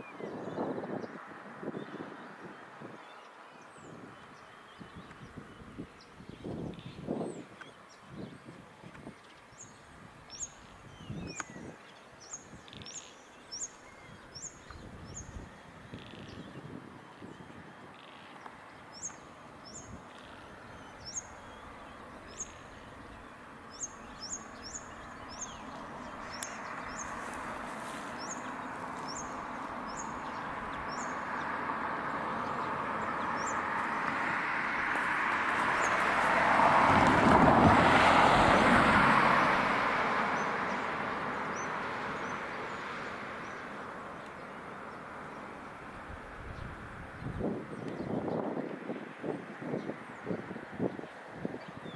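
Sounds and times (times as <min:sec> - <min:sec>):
bird chirping: 0:09.1 - 0:34.3
road vehicle passing: 0:17.8 - 0:47.9.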